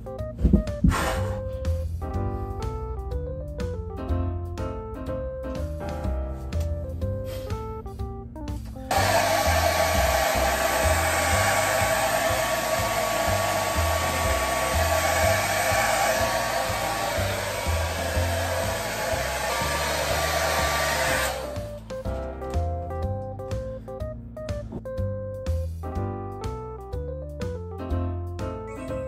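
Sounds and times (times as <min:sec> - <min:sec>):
hair dryer blowing: 0:08.9 - 0:21.9.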